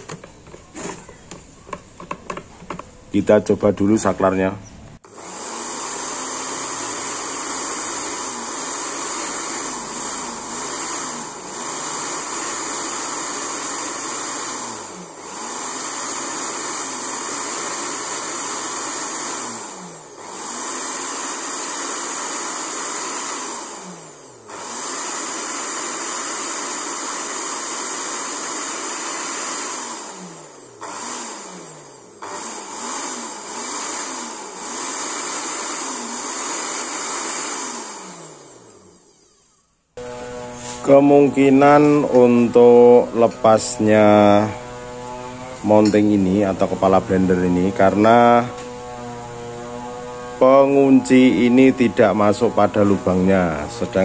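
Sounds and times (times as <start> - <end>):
blender motor whirring: 0.0 - 3.2, 5.0 - 54.0.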